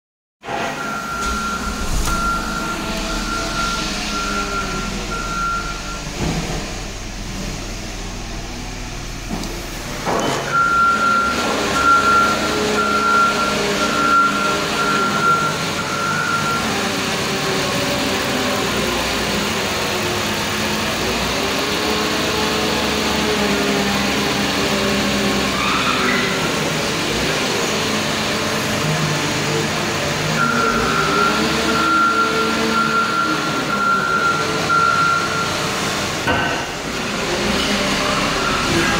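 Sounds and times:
car warning chime beeping: 0.8s - 6.2s, 10.6s - 16.7s, 30.4s - 35.7s
car engine idling: 0.9s - 12.0s.

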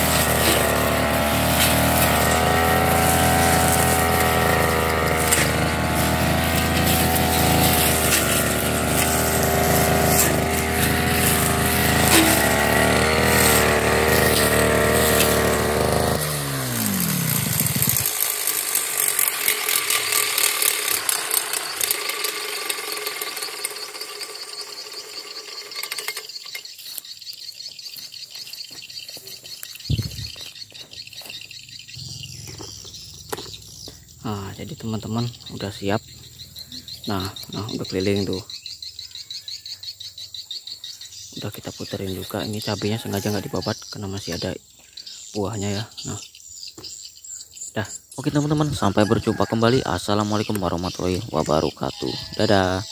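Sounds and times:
brush cutter engine running: 0.0s - 27.6s, 29.2s - 38.4s, 41.4s - 44.4s.

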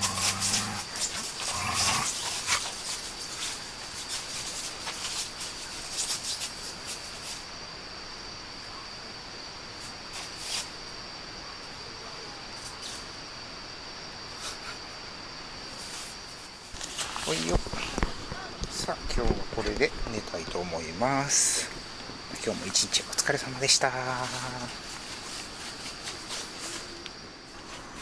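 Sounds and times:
dogs rustling on groundsheet: 0.0s - 7.4s, 15.7s - 18.4s, 21.5s - 28.0s
crickets trilling: 0.0s - 28.0s.

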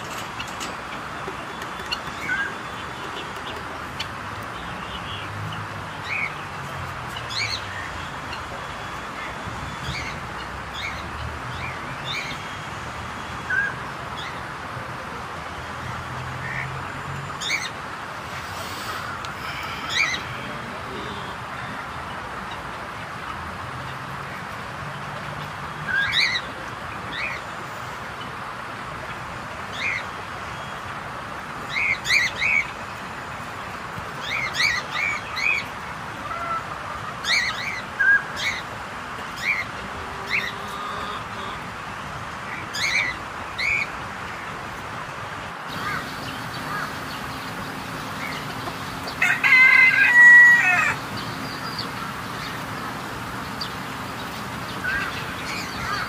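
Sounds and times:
birds chirping: 0.0s - 6.5s, 45.7s - 56.0s
rooster crowing: 19.4s - 20.5s, 45.7s - 53.1s
steady background hiss: 42.2s - 56.0s.

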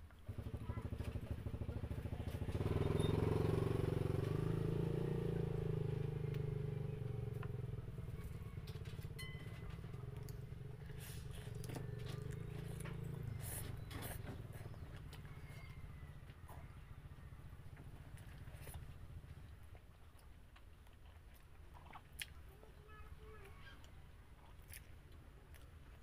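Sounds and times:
small engine running: 0.2s - 19.6s.

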